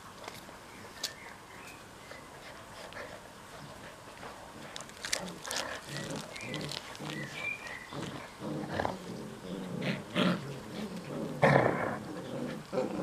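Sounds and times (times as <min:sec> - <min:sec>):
dogs growling: 0:04.5 - 0:13.0.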